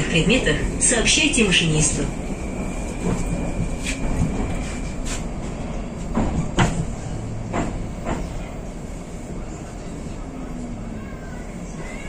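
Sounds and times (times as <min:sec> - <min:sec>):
metro train running noise: 0:00.0 - 0:12.0.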